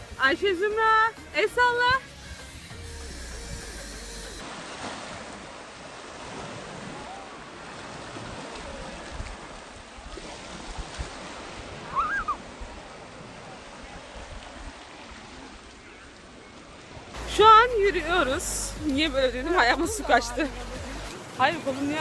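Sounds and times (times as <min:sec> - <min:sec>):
small waves washing on shore: 0:04.4 - 0:22.0.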